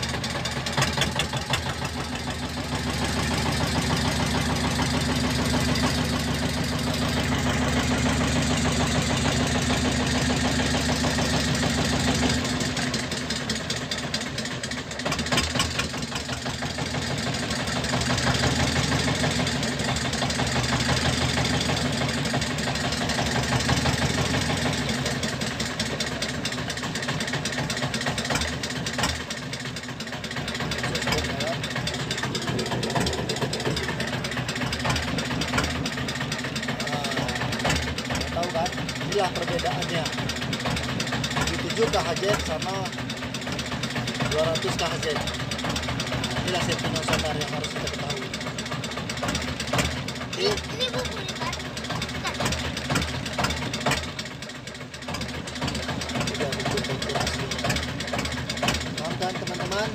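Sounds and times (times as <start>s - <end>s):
boat engine throbbing: 0.0s - 59.9s.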